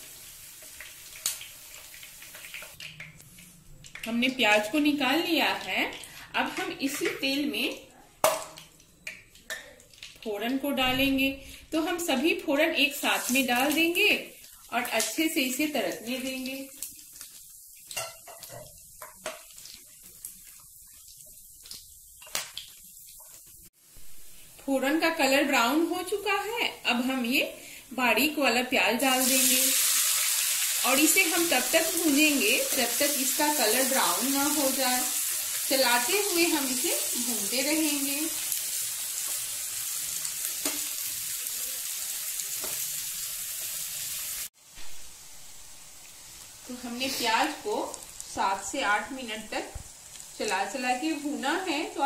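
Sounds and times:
spices sizzling in hot oil: 0:00.0 - 0:52.0
crackles and pops: 0:00.7 - 0:04.1, 0:19.0 - 0:23.4, 0:47.4 - 0:48.4, 0:49.8 - 0:50.6.

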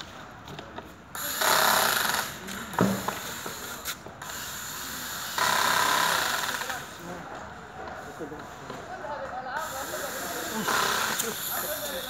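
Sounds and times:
cordless drill driving a screw: 0:01.2 - 0:06.9, 0:09.7 - 0:12.0.

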